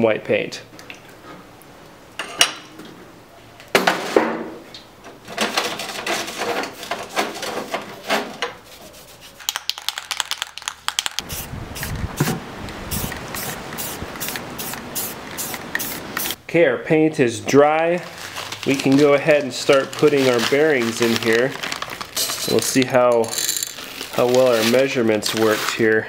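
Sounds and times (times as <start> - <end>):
aerosol spray can spraying: 11.2 - 16.4.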